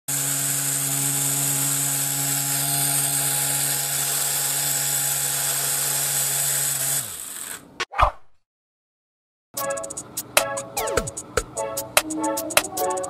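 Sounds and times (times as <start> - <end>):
high-pitched motor whine: 0.1 - 5.5.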